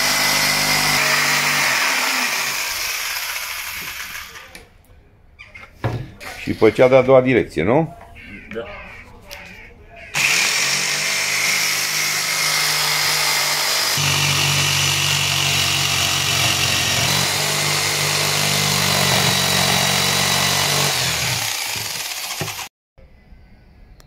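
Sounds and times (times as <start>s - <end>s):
jigsaw cutting wood: 0.0s - 4.4s, 10.2s - 22.7s
motor winding down: 0.0s - 4.4s, 10.2s - 22.7s.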